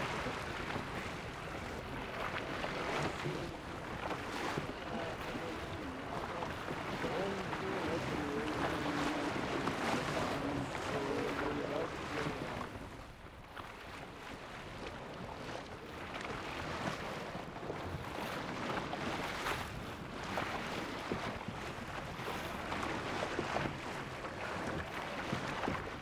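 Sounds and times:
wind buffeting microphone: 0.0 - 13.2
water splashing against wooden boat: 0.0 - 26.0.

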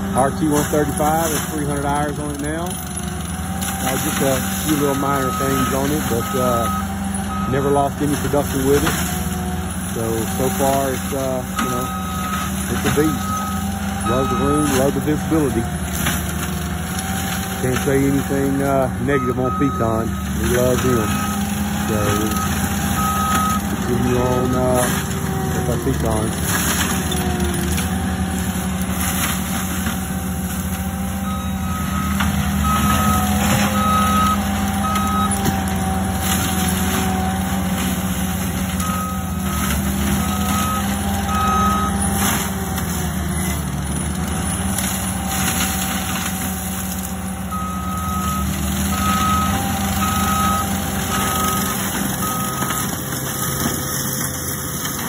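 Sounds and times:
mulcher head working brush: 0.0 - 55.0
track loader running under load: 0.0 - 55.0
backup alarm beeps: 4.3 - 8.4, 10.4 - 15.4, 18.5 - 24.9, 31.2 - 35.4, 38.8 - 42.1, 47.5 - 53.7.

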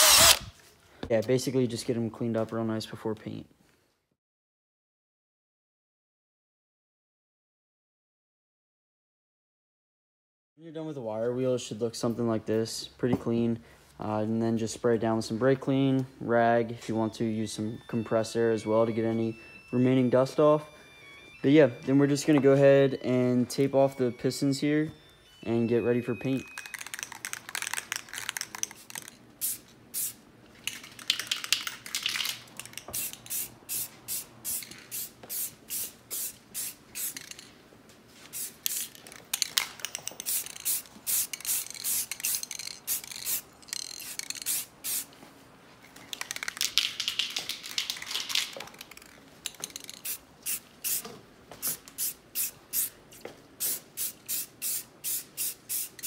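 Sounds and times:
aerosol can spraying hiss: 50.0 - 51.0, 53.6 - 56.0.

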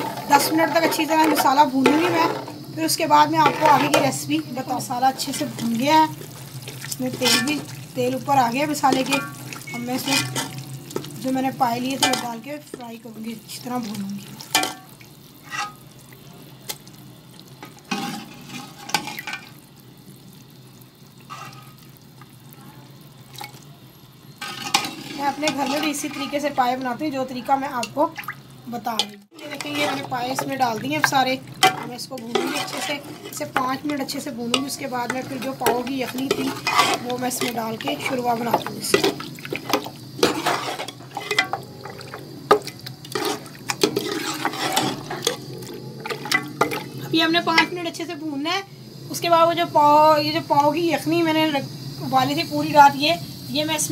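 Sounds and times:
pieces knocking and clinking in pot: 0.0 - 2.6, 3.3 - 4.5, 5.2 - 13.0, 13.9 - 15.8, 28.9 - 47.8
masala frying in pot: 0.0 - 53.9
meat sizzling in oil: 0.0 - 53.9.

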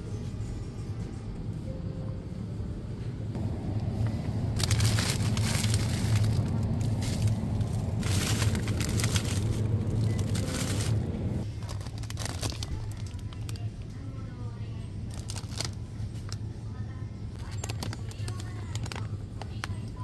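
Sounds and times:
steady low hum: 0.0 - 17.8
plastic packaging crinkling: 4.6 - 13.7, 15.1 - 16.4, 17.4 - 19.9.

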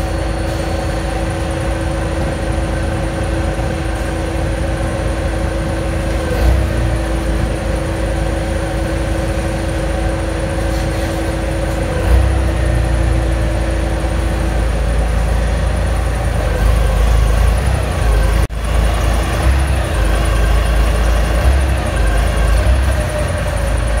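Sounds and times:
forklift engine rumbling: 0.0 - 24.0
steady whine: 0.0 - 24.0.

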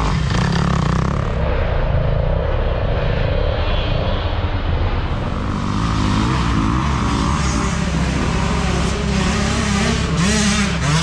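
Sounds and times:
engine revving: 0.0 - 1.7, 5.1 - 11.0
dirt bike engines droning: 0.0 - 11.0.

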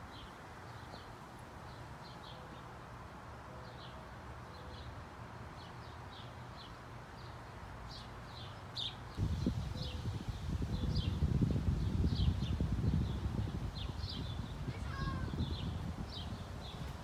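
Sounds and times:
small birds chirping: 5.6 - 17.0.

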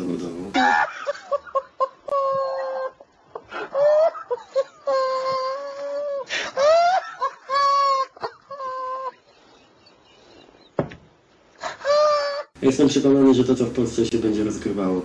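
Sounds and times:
man laughing in high wail: 0.6 - 10.4, 11.6 - 12.6.

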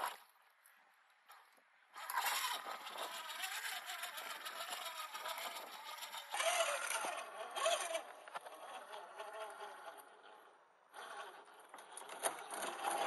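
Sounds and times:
toy car electric motor whining: 2.0 - 13.0.

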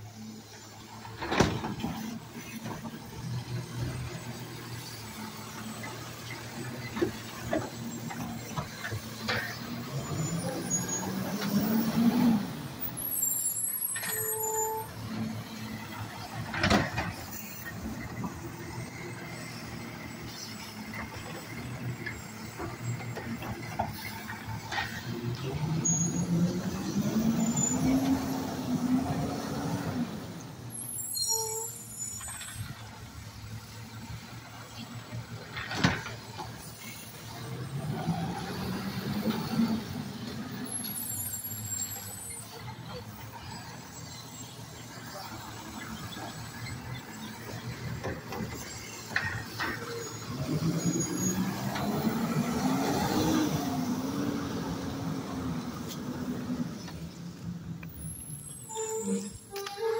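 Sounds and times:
air brake hiss with squeal: 13.0 - 15.0, 25.8 - 26.4, 30.7 - 32.7, 40.7 - 42.7, 58.0 - 59.9
garbage truck engine revving: 49.4 - 56.7.

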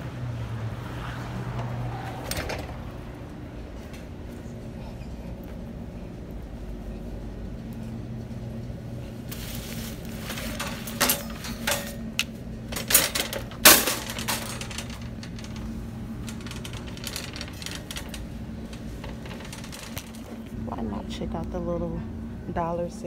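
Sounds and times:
steady low hum: 0.0 - 23.0
cart rolling with light rattle: 1.0 - 21.3
metal shopping cart clanking: 9.4 - 20.5.

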